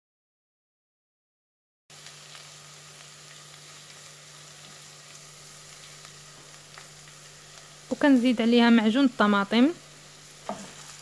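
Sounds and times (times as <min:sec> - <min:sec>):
onion sizzling in oil: 0:01.9 - 0:11.0.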